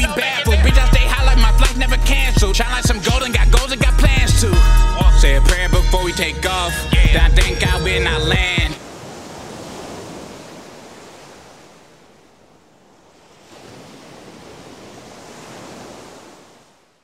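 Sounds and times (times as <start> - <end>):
ocean surf washing: 6.0 - 17.0.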